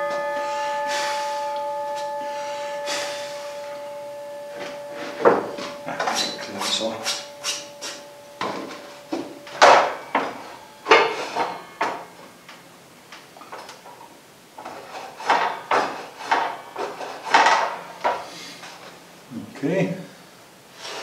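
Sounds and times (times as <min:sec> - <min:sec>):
wood scraping on saw table: 0:14.6 - 0:18.9.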